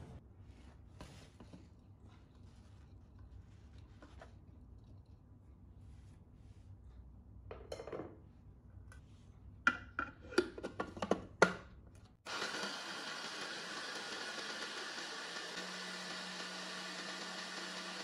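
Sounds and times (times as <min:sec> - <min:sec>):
food processor motor running: 0:12.3 - 0:18.0.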